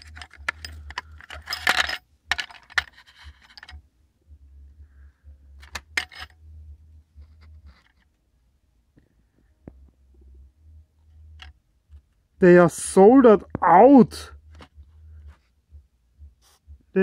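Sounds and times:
metal pins rattling: 0:00.0 - 0:03.8, 0:05.6 - 0:06.4
low hum: 0:00.0 - 0:17.0.

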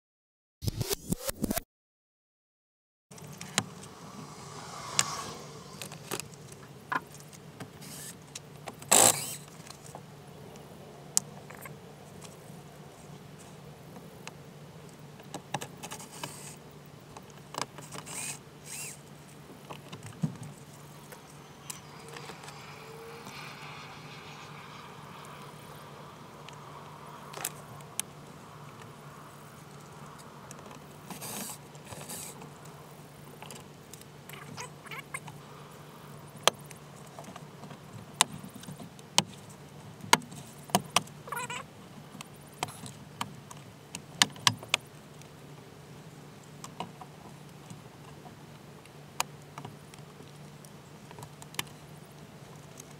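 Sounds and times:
steady low hum: 0:03.1 - 0:07.6
cordless drill-driver: 0:18.1 - 0:19.0.

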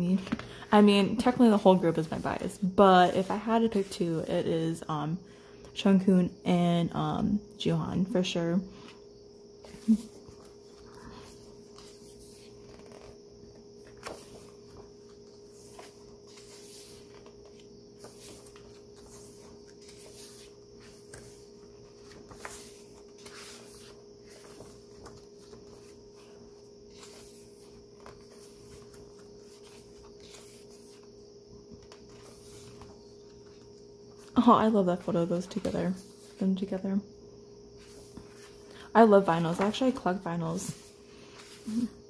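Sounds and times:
faint steady hum: 0:00.0 - 0:42.0
book pages turning: 0:09.6 - 0:34.4, 0:37.8 - 0:38.7.

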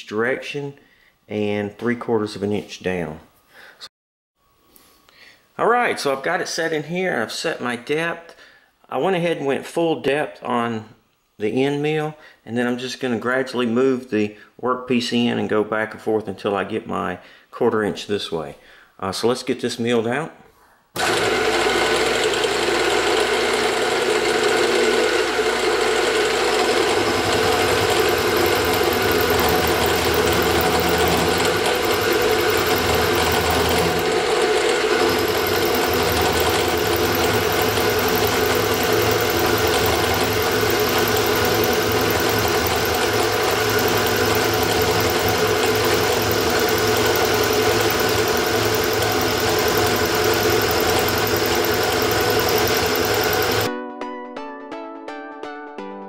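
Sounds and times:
milling machine cutting metal: 0:21.0 - 0:53.7.

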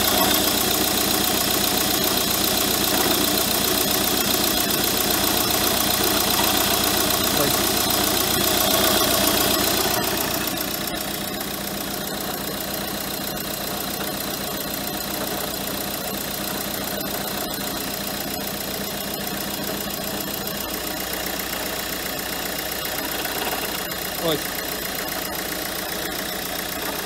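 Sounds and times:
diesel engine idling: 0:00.0 - 0:27.0
harsh mechanical engine noise: 0:00.0 - 0:27.0.

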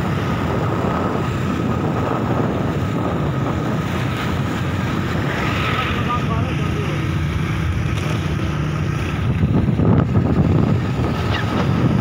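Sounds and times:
road noise: 0:00.0 - 0:12.0
wind rumble on microphone: 0:00.0 - 0:12.0.

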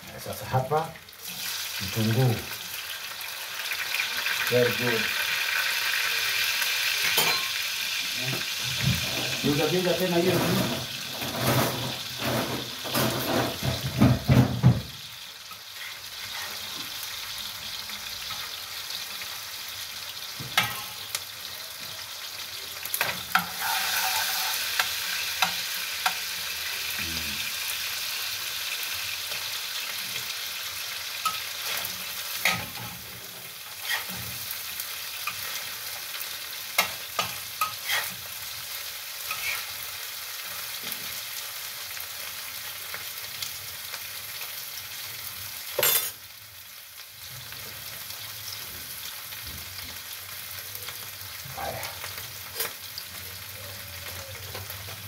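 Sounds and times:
fish and onions sizzling: 0:00.0 - 0:55.0
metal spatula scraping pan: 0:10.2 - 0:13.8, 0:20.6 - 0:21.1, 0:23.0 - 0:26.2, 0:31.2 - 0:36.0, 0:36.8 - 0:38.3, 0:39.2 - 0:39.9.

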